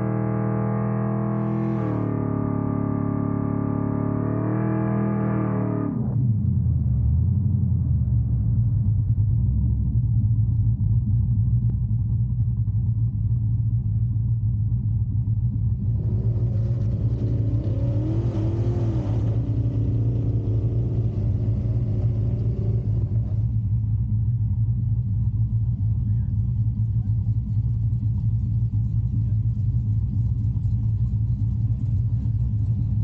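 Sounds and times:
passing vehicle engine: 0:00.0 - 0:06.0
car engine idling: 0:06.8 - 0:33.0.

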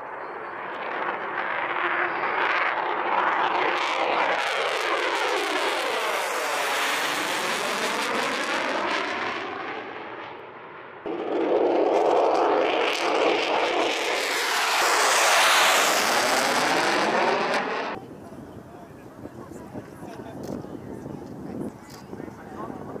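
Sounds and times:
jet engine roar: 0:00.0 - 0:23.0
loud rushing noise: 0:11.0 - 0:18.0.

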